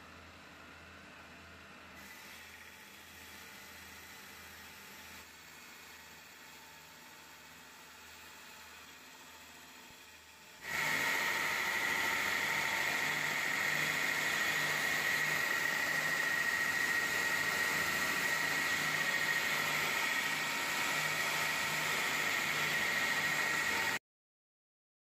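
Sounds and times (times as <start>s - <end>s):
belt sander grinding steel: 10.6s - 24.0s.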